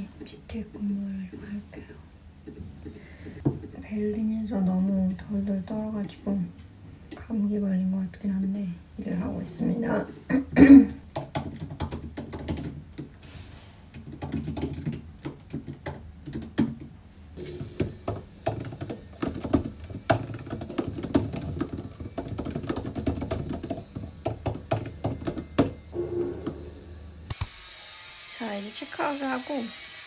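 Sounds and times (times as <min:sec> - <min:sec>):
typing on computer keyboard: 0:11.1 - 0:13.1, 0:13.9 - 0:16.9, 0:17.8 - 0:25.8.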